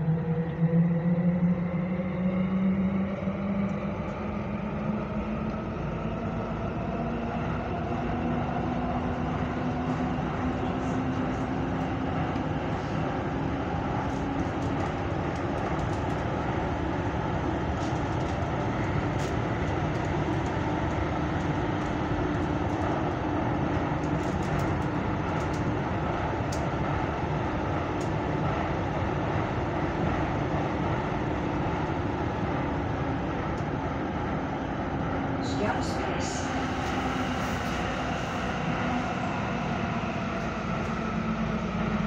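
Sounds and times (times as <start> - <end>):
low hum: 0.0 - 42.0
metro train rumbling in tunnel: 0.0 - 42.0.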